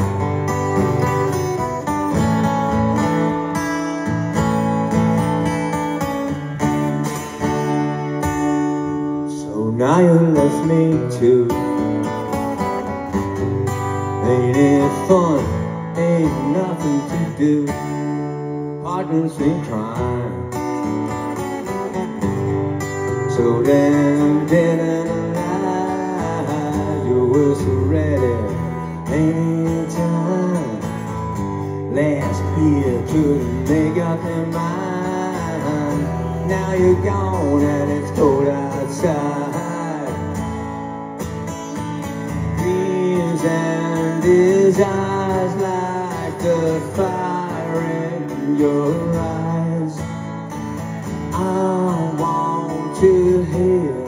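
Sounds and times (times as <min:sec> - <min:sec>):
acoustic guitar strumming: 0:00.0 - 0:54.0.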